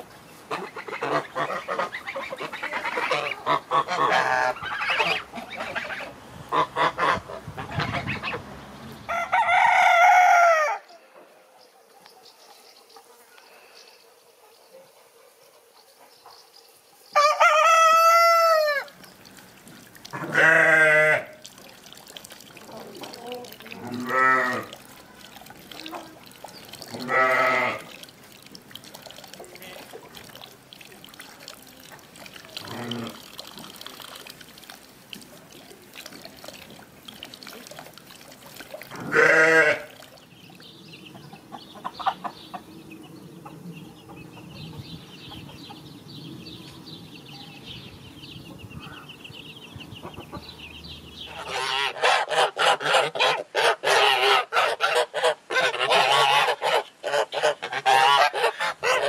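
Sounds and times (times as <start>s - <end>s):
geese honking: 0.5s - 8.4s, 51.3s - 59.0s
goat bleating: 20.2s - 21.4s, 23.8s - 24.7s, 26.9s - 27.9s, 39.0s - 39.9s
chicks peeping: 40.3s - 51.4s.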